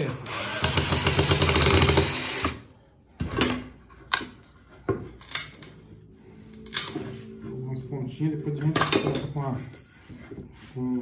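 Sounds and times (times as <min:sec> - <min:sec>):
cordless drill boring into wood: 0:00.1 - 0:02.6.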